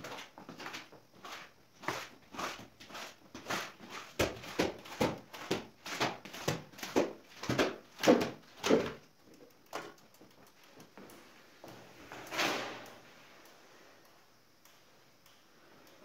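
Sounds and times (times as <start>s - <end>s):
rubber boots on wet tiles: 0.0s - 9.0s.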